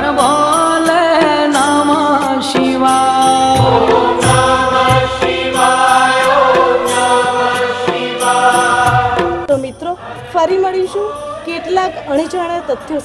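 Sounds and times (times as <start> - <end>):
drums and percussion: 0.0 - 13.0
voices chanting: 3.6 - 13.0.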